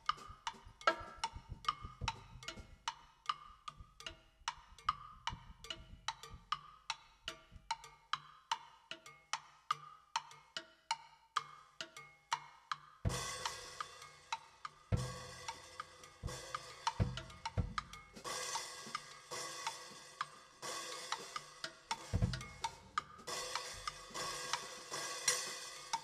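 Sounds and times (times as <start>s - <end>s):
bass drum thumps: 0.0s - 2.9s, 5.2s - 6.6s, 13.1s - 13.5s, 14.9s - 15.4s, 16.2s - 19.1s, 22.1s - 24.3s
pitched notes struck on bars: 0.0s - 8.4s, 11.4s - 26.0s
hi-hat: 13.1s - 26.0s
snare and tom hits: 14.9s - 15.6s, 16.2s - 20.2s, 20.8s - 26.0s
cymbal crashes: 18.2s - 26.0s.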